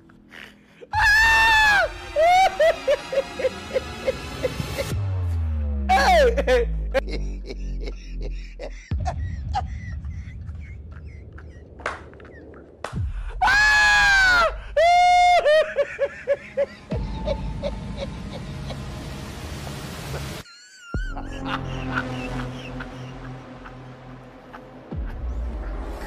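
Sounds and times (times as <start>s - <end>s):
woman screaming in fright: 0.9s - 3.5s, 13.4s - 15.7s.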